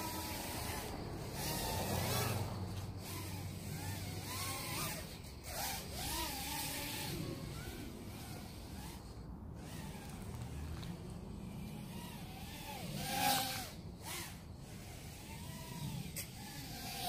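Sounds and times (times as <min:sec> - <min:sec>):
drone motors and propellers whining: 0:00.0 - 0:17.0.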